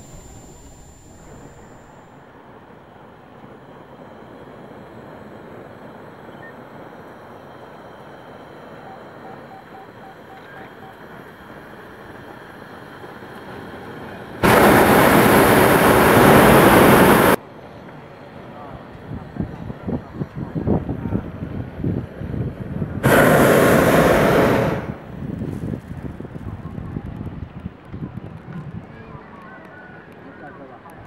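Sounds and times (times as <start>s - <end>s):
propane burner blast: 0.0s - 6.2s, 11.5s - 17.4s, 19.8s - 26.4s
faint air noise: 0.0s - 27.8s.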